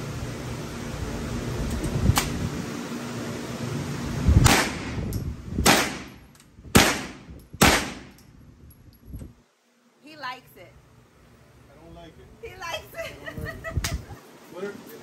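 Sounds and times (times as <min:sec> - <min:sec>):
gunshots: 0:04.4 - 0:05.0, 0:05.6 - 0:08.2.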